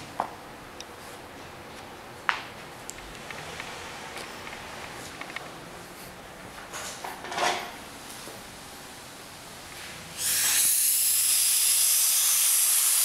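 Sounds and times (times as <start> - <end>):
compressed air blow gun hissing: 10.2 - 13.0.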